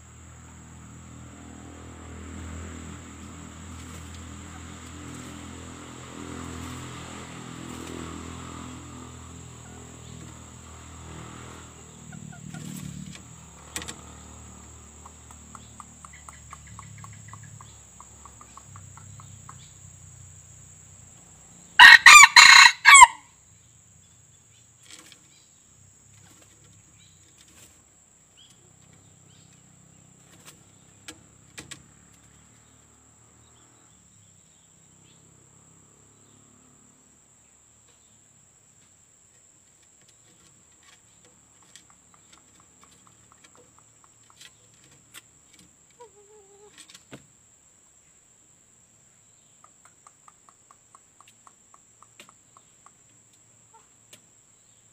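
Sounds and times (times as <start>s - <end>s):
faint background noise: 0.0s - 54.9s
rooster crowing: 21.7s - 23.4s.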